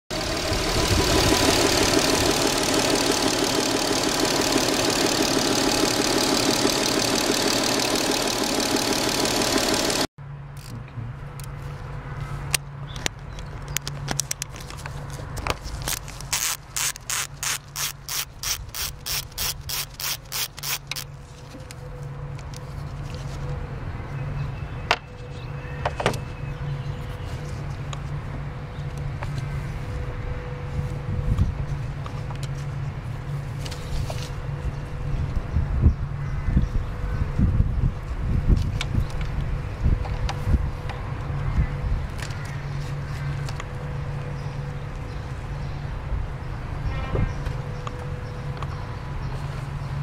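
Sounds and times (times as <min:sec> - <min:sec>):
ratchet wrench clicking: 0:15.9 - 0:21.1.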